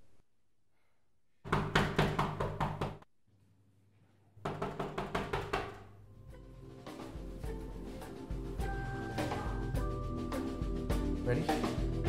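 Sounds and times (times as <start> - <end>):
rapid knocking on a door: 1.5 - 3.0, 4.4 - 5.8.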